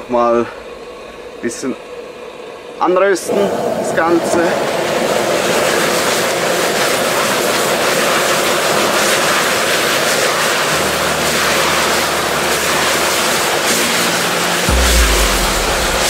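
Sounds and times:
gas wok burner roaring: 3.2s - 16.0s.

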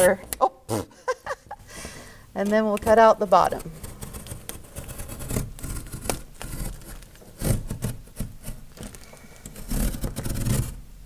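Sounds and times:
knife sawing through cardboard: 2.9s - 8.7s, 9.5s - 10.8s.

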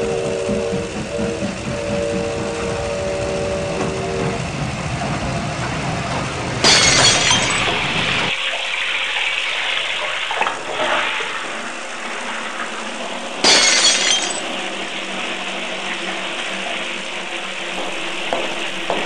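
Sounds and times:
rushing noise: 0.0s - 8.3s
loud crash: 6.6s - 8.3s.

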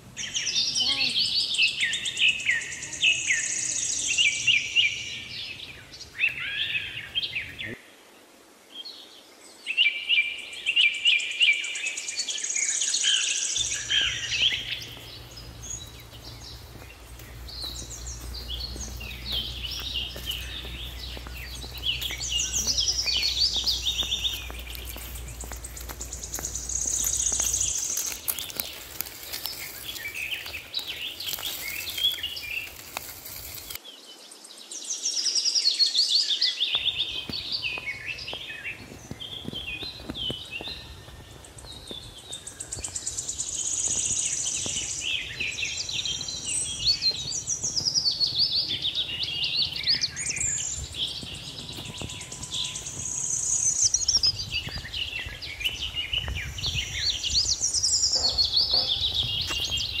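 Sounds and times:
birds chirping and whistling: 0.2s - 7.8s, 9.8s - 33.8s, 35.3s - 60.0s
even background noise: 13.5s - 33.8s.

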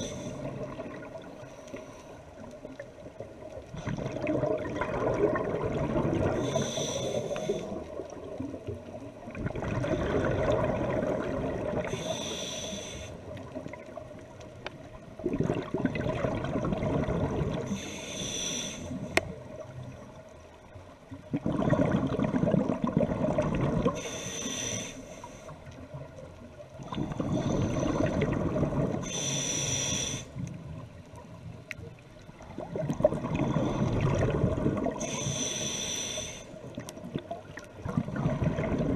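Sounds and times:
regulator bubbling and air rush: 3.8s - 6.7s, 9.3s - 11.9s, 15.2s - 17.7s, 21.3s - 24.0s, 26.8s - 29.1s, 32.4s - 35.2s, 36.6s - 38.9s
regulator hiss with faint whistle: 29.1s - 30.3s.

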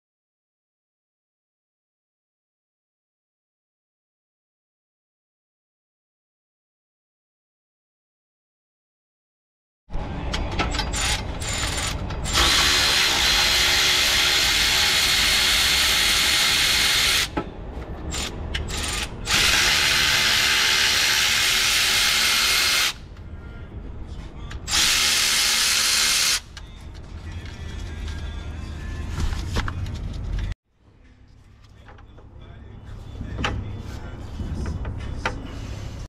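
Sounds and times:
power ratchet spinning bolts: 10.8s - 17.3s, 18.1s - 23.0s, 24.7s - 26.5s.

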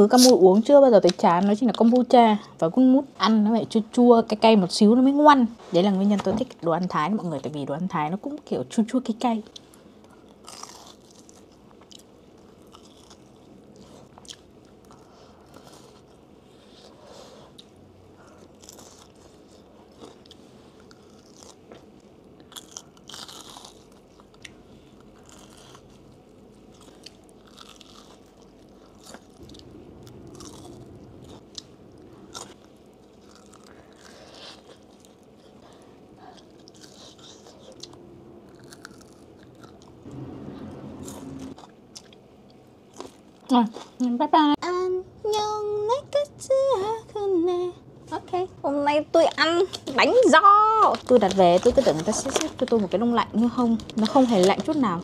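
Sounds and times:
chewing and crunching fried food: 9.2s - 40.1s, 41.0s - 44.2s, 50.9s - 55.0s
crust cracking: 18.2s - 35.8s, 49.3s - 55.0s.

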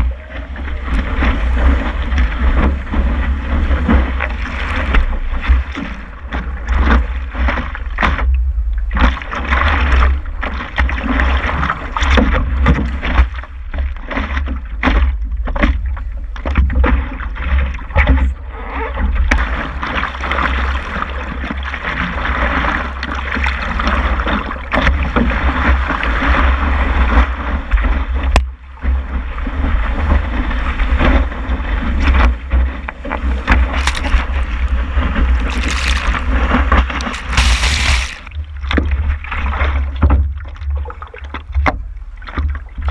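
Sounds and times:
water rushing and splashing: 0.0s - 42.9s
wind rumble on microphone: 0.0s - 42.9s
whitewater breaking: 30.0s - 39.8s.

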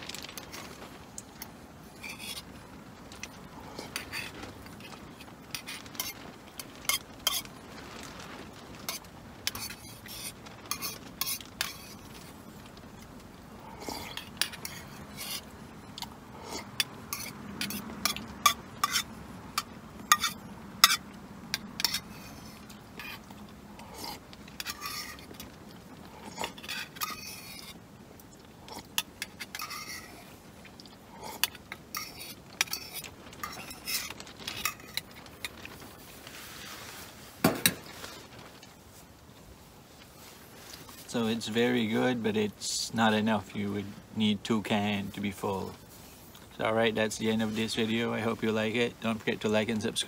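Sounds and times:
utensil scraping a metal pot: 1.3s - 2.6s, 3.2s - 7.6s, 8.8s - 12.4s, 13.8s - 25.6s, 26.2s - 27.8s, 28.7s - 38.1s.

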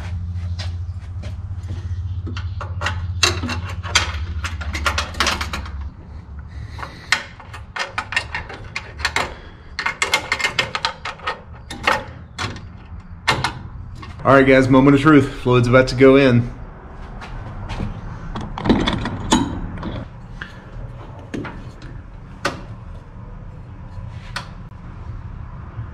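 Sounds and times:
steady low hum: 0.0s - 25.9s
clicks and knocks of car work: 2.2s - 14.2s, 17.8s - 23.2s.

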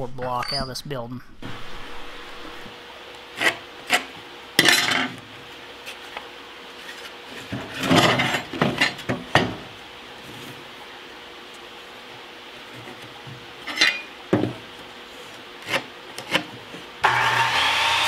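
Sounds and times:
knocks and clinks of lumber and metal: 13.6s - 14.6s.

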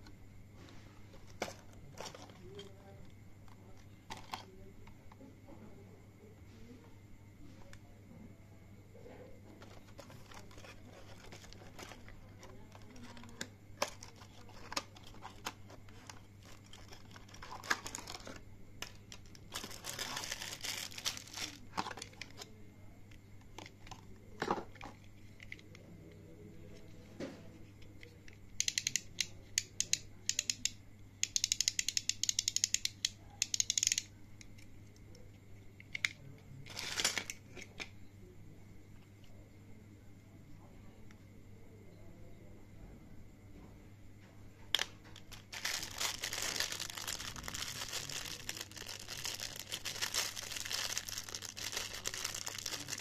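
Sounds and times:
faint steady hum: 0.0s - 53.0s
plastic bag crinkling: 9.6s - 22.0s, 44.8s - 53.0s.

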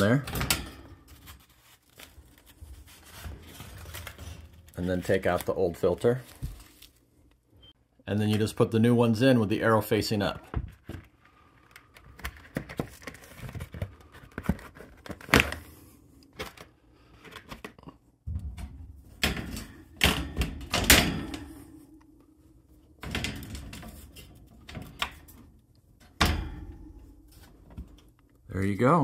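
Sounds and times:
air filter handling noise: 18.5s - 28.2s.

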